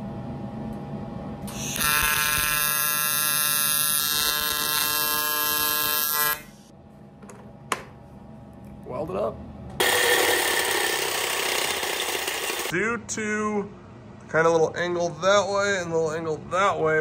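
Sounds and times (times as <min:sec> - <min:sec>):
welding arc buzzing: 0:01.4 - 0:06.7, 0:09.8 - 0:12.7.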